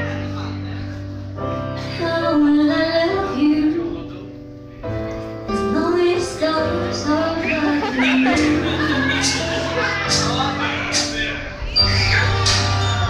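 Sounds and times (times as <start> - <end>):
pop backing track: 0.0 - 13.0
woman singing into microphone: 1.8 - 4.0, 5.5 - 8.9.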